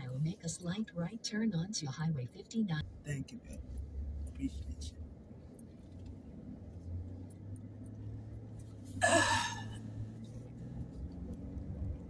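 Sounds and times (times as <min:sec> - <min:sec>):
road and engine hum in vehicle: 0:00.0 - 0:12.0.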